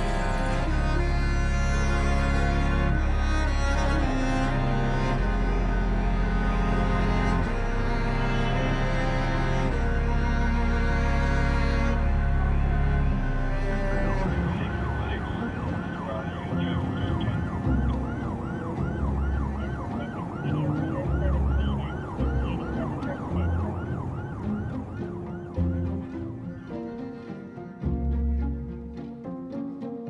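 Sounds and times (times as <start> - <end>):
low background music: 0.0 - 30.0
emergency siren yelping: 13.7 - 26.8.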